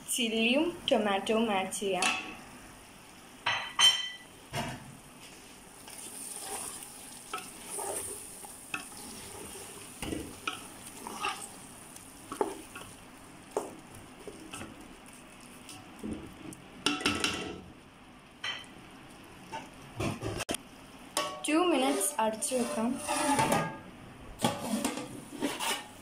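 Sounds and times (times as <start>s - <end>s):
masala sizzling: 0.0s - 26.0s
spatula scraping and tapping pot: 5.9s - 11.5s, 12.3s - 17.4s, 21.2s - 23.7s, 24.4s - 25.9s.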